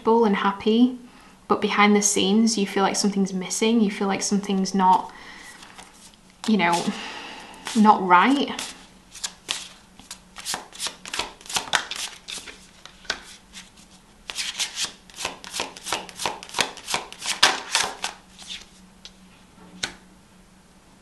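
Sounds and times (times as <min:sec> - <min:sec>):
cards being shuffled: 0:04.9 - 0:07.0, 0:07.6 - 0:18.8.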